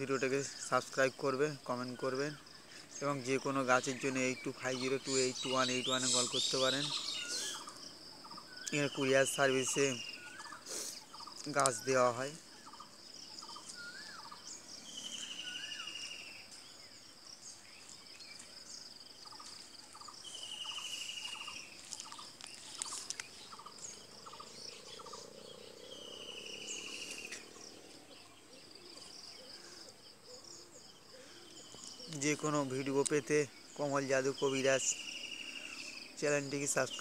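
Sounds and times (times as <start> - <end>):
high insect drone: 0.0 - 37.0
short bird chirps: 5.3 - 9.0.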